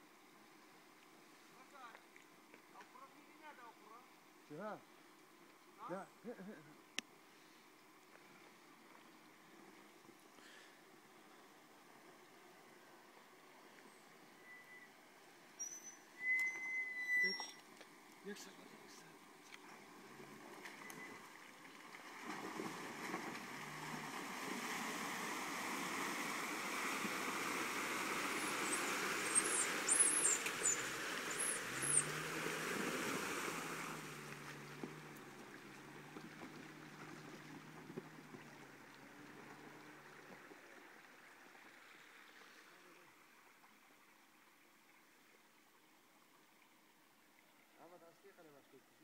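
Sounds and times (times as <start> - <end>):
water splashing around wheels: 13.4 - 42.8
short high squeaks: 15.6 - 17.7.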